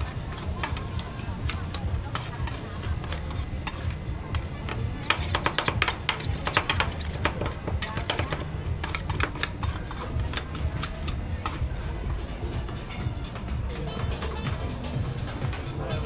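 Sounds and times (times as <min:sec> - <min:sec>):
metal spatulas tapping and scraping: 0:00.0 - 0:11.7
background music with heavy bass: 0:10.0 - 0:16.0.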